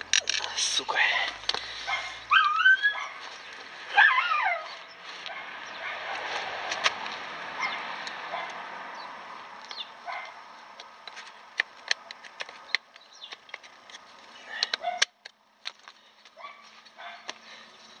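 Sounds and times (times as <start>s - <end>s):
animal whining: 1.9s - 3.2s.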